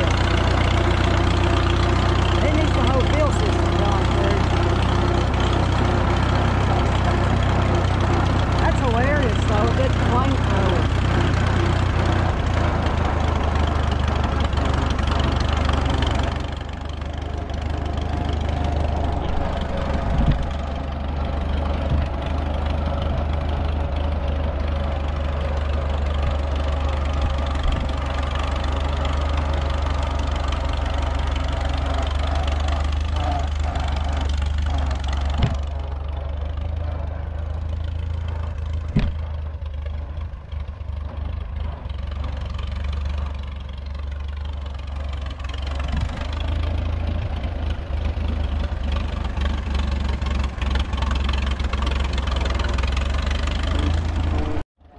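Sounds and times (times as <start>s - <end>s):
unmuffled tractor engine: 0.0s - 54.9s
sharp knocks: 35.2s - 35.7s, 38.9s - 39.2s.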